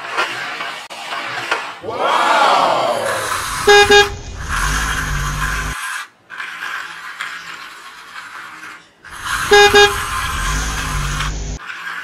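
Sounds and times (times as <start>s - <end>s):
toy car electronic horn beeping: 3.3s - 5.8s, 9.1s - 11.4s
hiss with low rumble: 9.3s - 11.6s.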